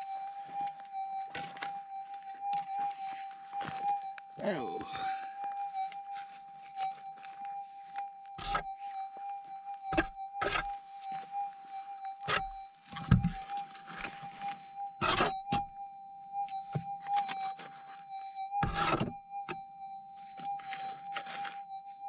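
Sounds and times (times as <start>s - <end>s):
scrapes and knocks on stony ground: 20.6s - 21.6s.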